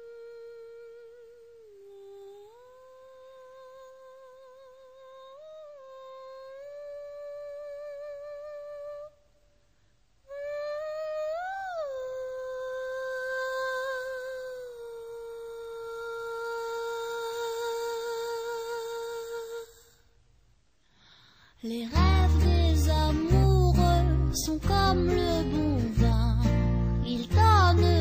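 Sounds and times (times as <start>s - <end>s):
high voice humming a melody: 0.0s - 9.3s, 10.2s - 20.1s.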